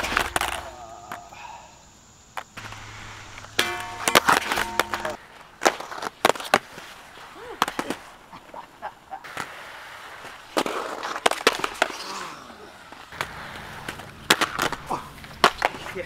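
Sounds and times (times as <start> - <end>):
skates grinding steel rail: 0.0 - 1.3, 2.4 - 16.0
inline skates knocking on concrete: 3.4 - 6.9, 10.5 - 12.0, 13.0 - 16.0
held ringing tone: 3.6 - 5.2.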